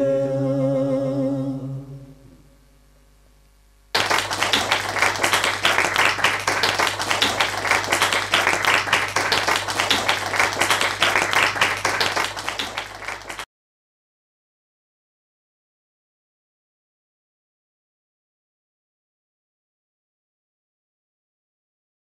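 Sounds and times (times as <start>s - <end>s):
audience applauding: 4.0s - 13.5s.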